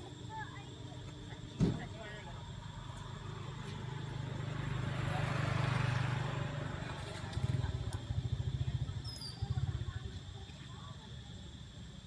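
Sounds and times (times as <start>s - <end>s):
small motorcycle engine idling: 1.9s - 12.0s
motorcycle passing by: 2.9s - 10.2s.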